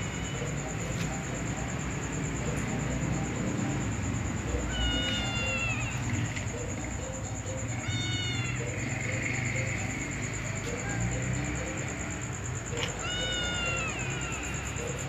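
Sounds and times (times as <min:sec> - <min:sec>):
cat meowing: 0:04.6 - 0:06.3, 0:07.7 - 0:08.9, 0:12.8 - 0:15.0.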